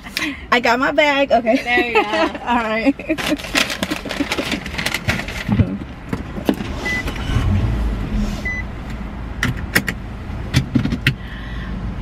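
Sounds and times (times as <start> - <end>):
low rumble inside car: 0.0 - 12.0
paper bag crinkling: 3.2 - 5.5
short high beeps: 6.8 - 7.4, 8.4 - 8.7.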